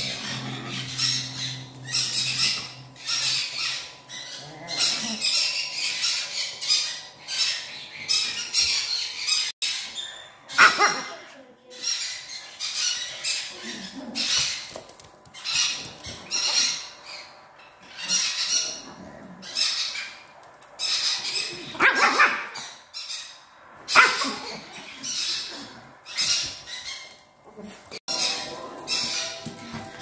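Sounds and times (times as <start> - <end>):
harsh animal calls: 0.0 - 7.6.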